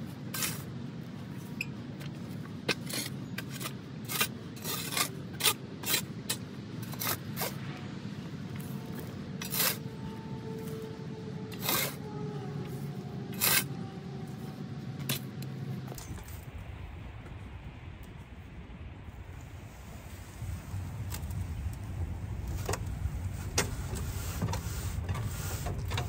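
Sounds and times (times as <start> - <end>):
shovel scraping soil: 0.3 - 0.7, 2.6 - 7.6, 8.6 - 10.8, 11.5 - 16.4.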